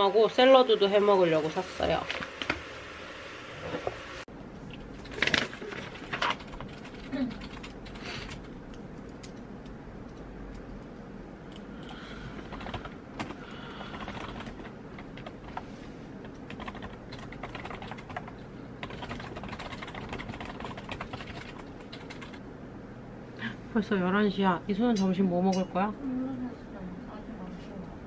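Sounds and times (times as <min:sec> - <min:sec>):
typing on keyboard: 0:05.1 - 0:09.4, 0:11.8 - 0:15.6, 0:16.2 - 0:22.4.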